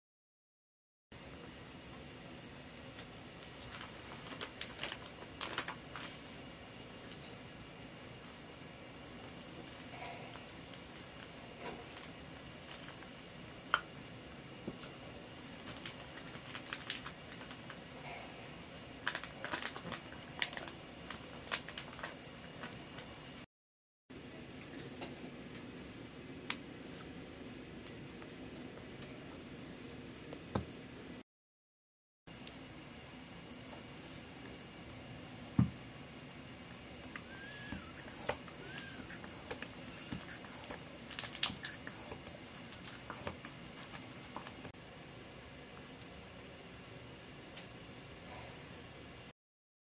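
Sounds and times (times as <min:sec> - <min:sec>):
plastic bag clicks and crinkles: 0:03.4 - 0:06.2, 0:15.6 - 0:17.8, 0:18.8 - 0:23.1, 0:39.5 - 0:44.6.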